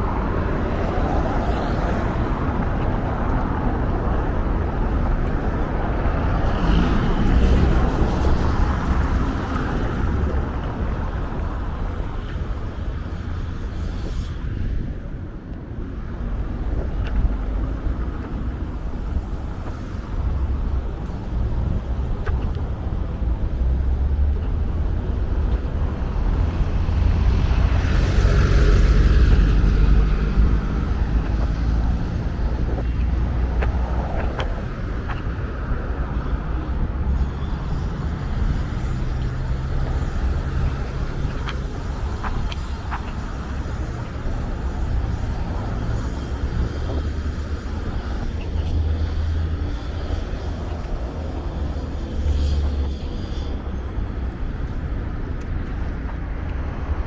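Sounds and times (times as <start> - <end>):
cars passing on a street: 0.0 - 57.0.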